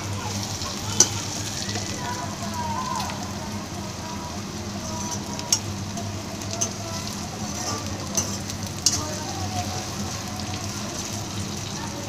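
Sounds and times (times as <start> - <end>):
vegetables sizzling in a pan: 0.0 - 12.0
metal spatula clinking on pan: 1.0 - 1.2, 6.5 - 6.8, 7.5 - 9.2.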